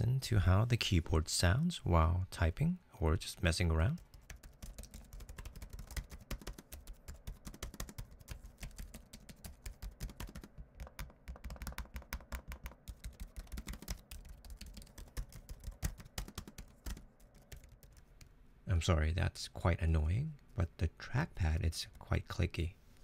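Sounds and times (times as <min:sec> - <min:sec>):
laptop keyboard typing: 0:03.9 - 0:18.3.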